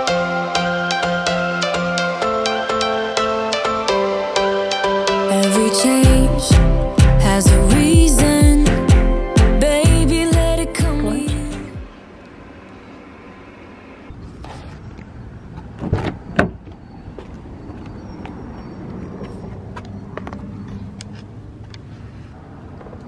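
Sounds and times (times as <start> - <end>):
outdoor background noise: 11.2 - 23.0.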